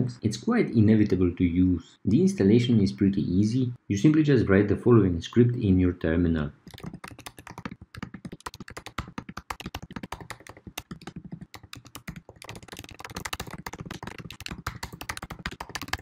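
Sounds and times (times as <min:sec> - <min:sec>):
fast keyboard typing: 0:06.7 - 0:16.0.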